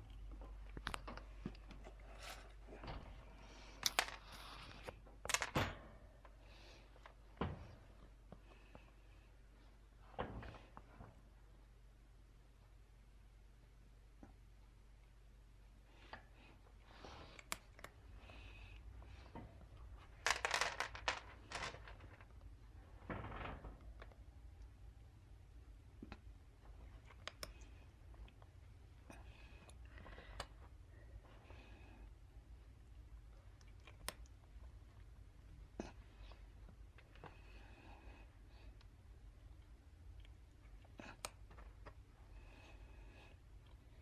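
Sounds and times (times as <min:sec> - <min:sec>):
rustling and crinkling: 0:19.0 - 0:24.4.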